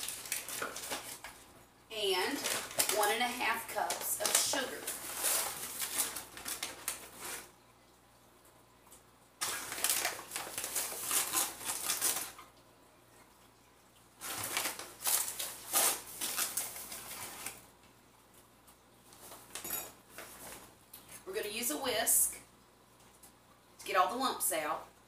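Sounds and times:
plastic bag rustling: 0.0s - 7.5s, 9.4s - 12.5s, 14.2s - 17.7s.

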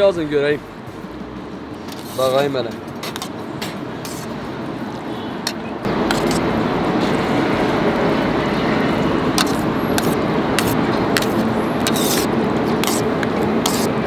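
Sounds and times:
steady rushing noise: 1.4s - 14.0s.

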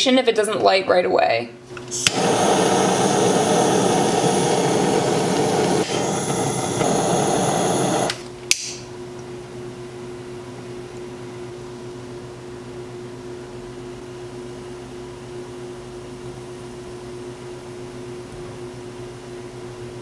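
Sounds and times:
torch burning with a hiss: 1.8s - 8.8s
utility lighter click: 2.0s - 2.5s, 5.3s - 8.8s.

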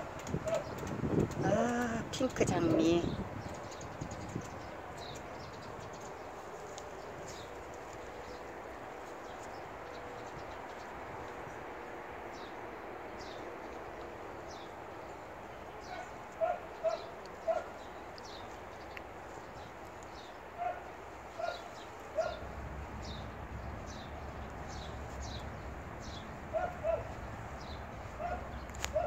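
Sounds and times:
dog barking: 0.4s - 0.7s, 15.8s - 17.8s, 20.6s - 22.4s, 26.5s - 27.1s, 28.2s - 29.0s
bird chirping: 12.3s - 29.0s.

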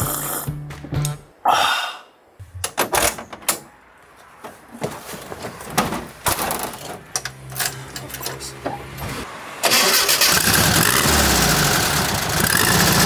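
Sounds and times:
person exhaling: 1.4s - 2.2s
van controls clicking and rattling: 5.3s - 8.8s.

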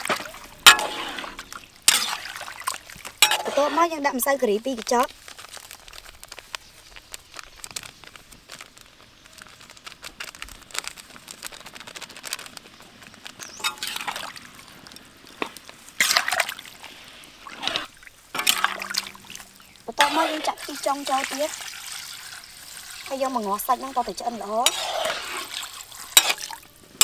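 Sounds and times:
wet sloshing strokes: 0.0s - 4.0s, 15.7s - 26.7s
metal ladle tapping and scraping wok: 0.1s - 2.3s, 3.2s - 3.9s, 13.6s - 14.2s, 18.4s - 21.4s, 24.6s - 26.5s.

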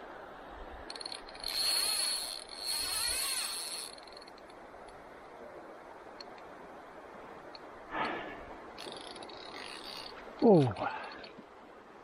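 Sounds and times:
fly reel ratchet buzzing: 0.8s - 4.6s, 8.8s - 10.2s.

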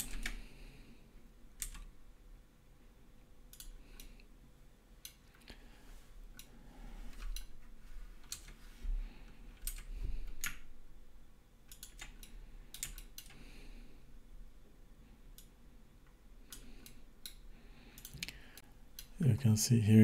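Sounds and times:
computer keyboard keys clicking: 0.0s - 0.4s, 1.6s - 1.9s, 9.6s - 10.6s, 11.7s - 13.4s.

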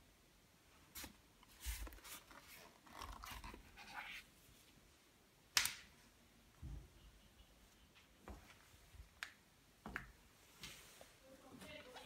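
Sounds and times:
rustling: 0.8s - 4.8s.

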